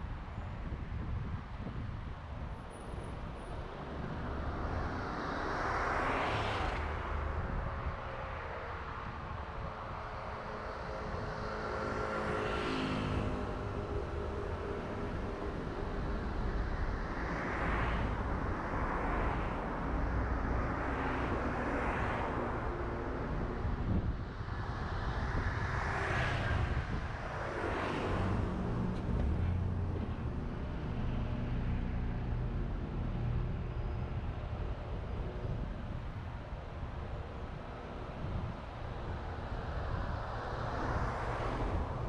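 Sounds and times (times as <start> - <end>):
car engine and tyres rumbling: 0.0 - 42.0
vehicles passing by: 0.0 - 42.0.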